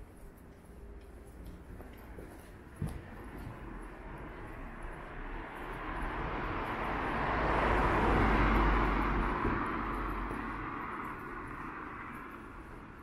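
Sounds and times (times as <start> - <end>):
car driving past: 4.6 - 13.0.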